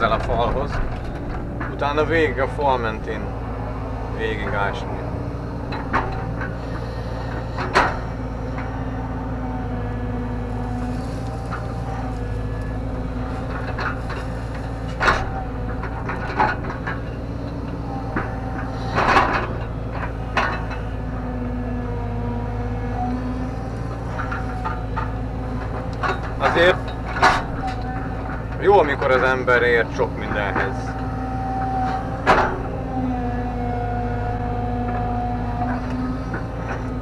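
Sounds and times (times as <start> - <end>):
excavator diesel engine: 0.0 - 37.0
hydraulic whine: 0.0 - 37.0
sharp metal clunks: 31.7 - 32.8.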